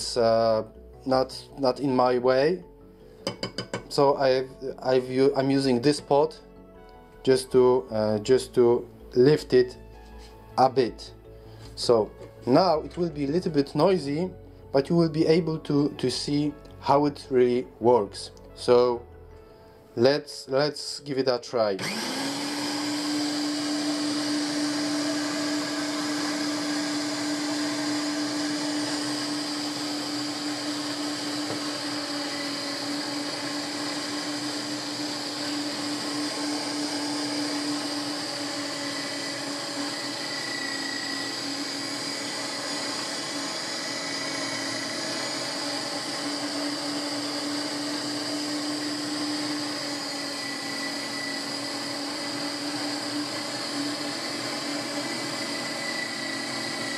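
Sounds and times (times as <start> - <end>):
meat grinder motor whining: 21.6 - 56.9.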